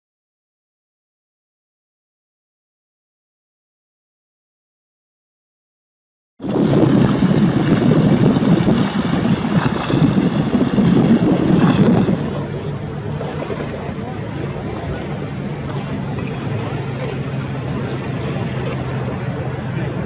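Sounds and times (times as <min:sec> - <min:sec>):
sea waves washing on stone: 0:06.4 - 0:20.0
wind buffeting microphone: 0:06.4 - 0:20.0.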